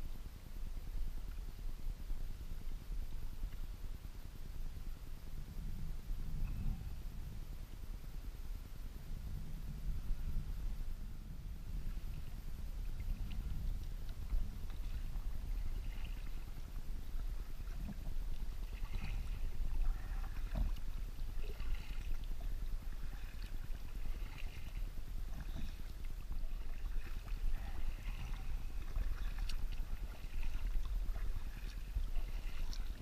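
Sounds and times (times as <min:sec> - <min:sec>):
low rumble: 0:00.0 - 0:33.0
water lapping at hull: 0:00.0 - 0:33.0
paddle strokes splashing: 0:11.7 - 0:33.0.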